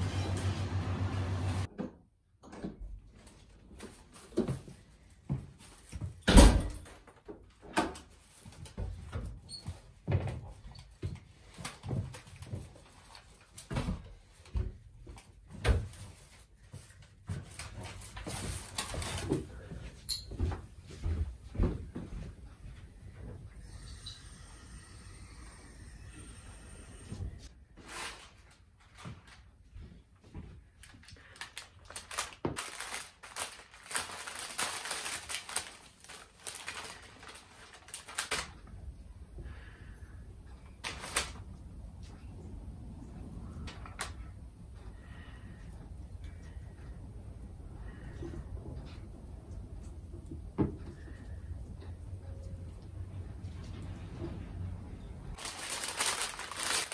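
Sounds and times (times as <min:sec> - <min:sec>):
paper wrapping crinkling: 0:30.8 - 0:38.7, 0:40.8 - 0:41.5, 0:55.3 - 0:56.9
plastic bag rustling: 0:30.8 - 0:38.7, 0:40.8 - 0:41.5, 0:55.3 - 0:56.9.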